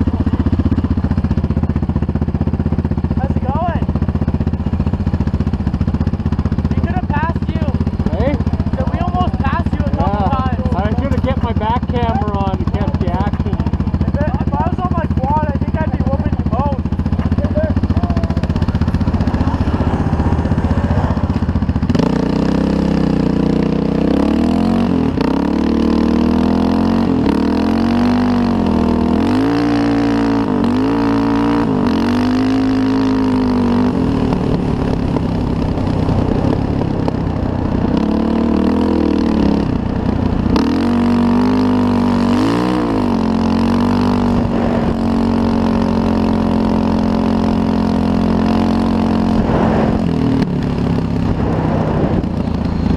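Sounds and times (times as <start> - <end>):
off-road vehicle engine revving: 0.0 - 52.9
steady rushing noise: 27.1 - 52.9.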